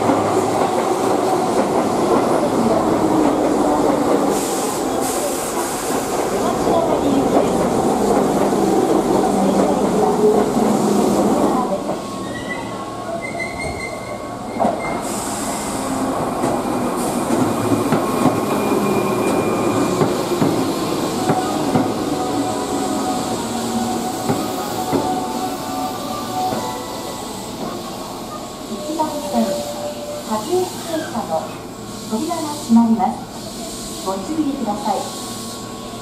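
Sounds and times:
train wheel and running noise: 0.0s - 36.0s.

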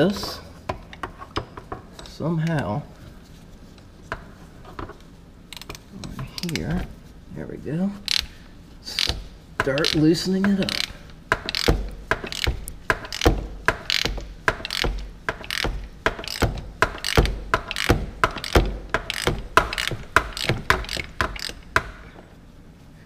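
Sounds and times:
ratchet wrench clicking: 8.1s - 8.3s, 8.9s - 21.8s.

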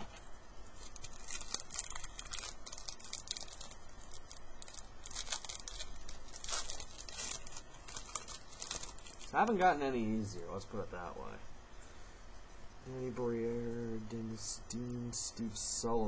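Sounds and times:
wrapper crinkling and tearing: 0.0s - 9.6s.

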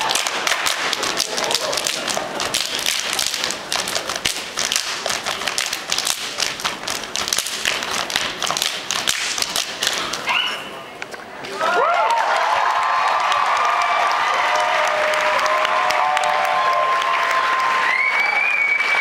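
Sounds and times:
hands clapping and slapping chests: 0.0s - 10.3s.

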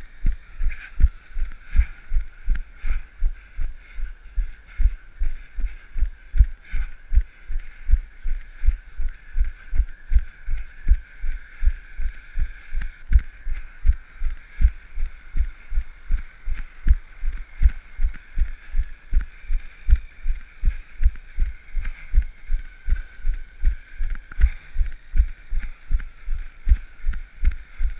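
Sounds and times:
steady high hiss: 0.0s - 27.9s.

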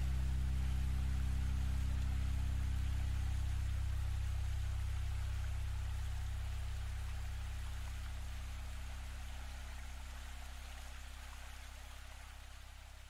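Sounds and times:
low sustained drone: 0.0s - 9.1s.

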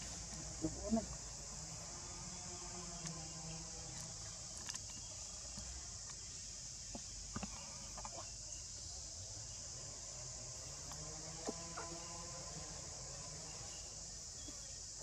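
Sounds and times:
high-pitched insect drone: 9.5s - 15.0s.

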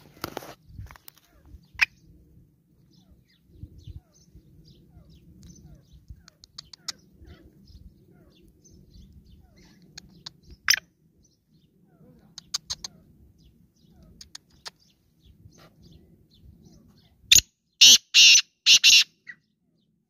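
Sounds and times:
low rumble: 0.0s - 12.4s
birds chirping: 0.0s - 20.0s
sharp clicks: 5.4s - 7.0s.

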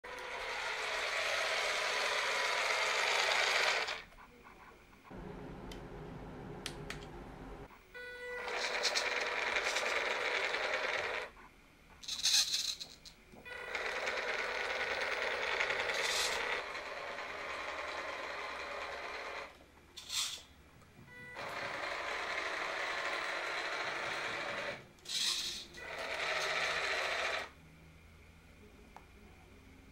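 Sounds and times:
toy car electric motor whining: 0.1s - 4.1s, 8.2s - 11.3s, 12.0s - 20.5s, 21.4s - 27.6s.

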